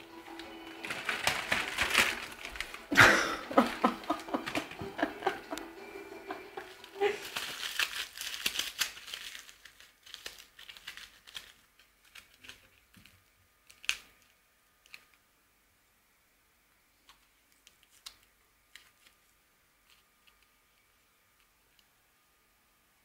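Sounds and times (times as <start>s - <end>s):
cat rustling crinkly object: 0.0s - 15.2s, 17.0s - 21.8s.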